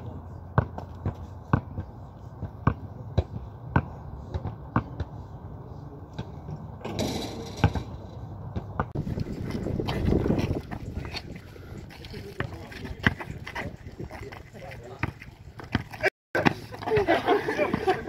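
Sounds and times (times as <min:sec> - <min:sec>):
basketball bouncing on concrete: 0:00.5 - 0:05.1, 0:07.6 - 0:11.2, 0:12.2 - 0:18.0.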